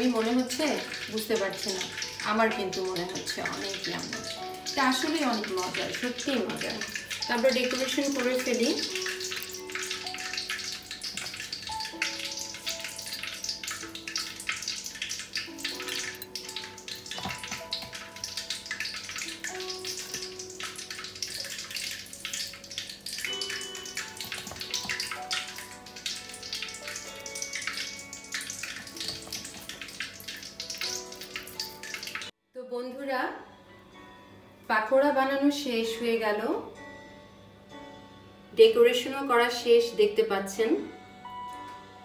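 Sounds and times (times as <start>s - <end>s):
food deep-frying in oil: 0.0s - 32.4s
soft background music: 0.0s - 42.0s.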